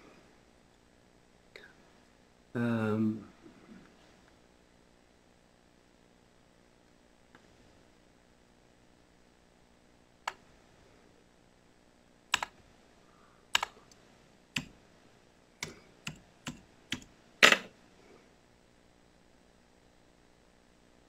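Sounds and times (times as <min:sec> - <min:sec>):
laptop keys clicking: 0:12.3 - 0:12.6, 0:13.5 - 0:13.8, 0:14.6 - 0:14.8, 0:15.6 - 0:17.1.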